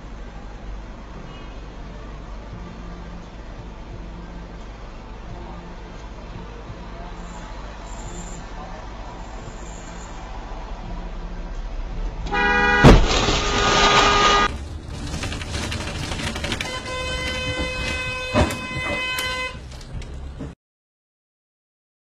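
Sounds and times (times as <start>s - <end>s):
crunching noise: 12.1s - 20.1s
car horn blaring: 12.2s - 14.6s, 16.4s - 19.7s
car impact bang: 12.2s - 14.7s, 16.5s - 19.6s
thud: 12.8s - 13.8s, 17.3s - 19.2s.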